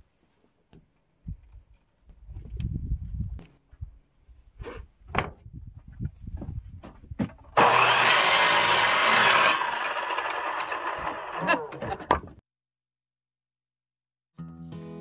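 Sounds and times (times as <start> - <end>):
electric miter saw cutting wood: 7.6 - 12.0.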